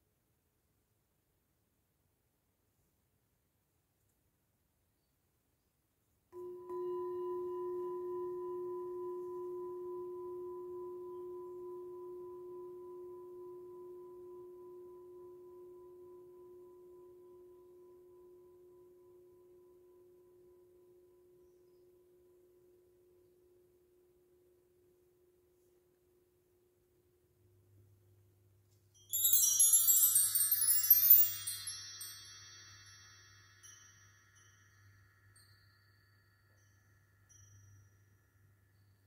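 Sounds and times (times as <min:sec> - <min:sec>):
singing bowl ringing: 0:06.4 - 0:21.8, 0:29.0 - 0:39.0.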